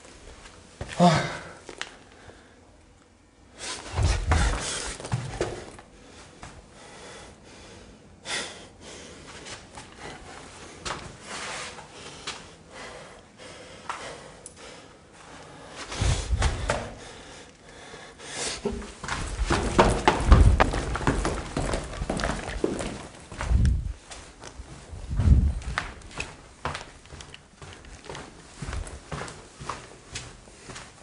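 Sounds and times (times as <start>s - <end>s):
footsteps in a corridor: 0.0s - 2.5s, 3.7s - 31.0s
rustling and handling noise: 18.9s - 31.0s
heavy thumps: 19.1s - 24.0s.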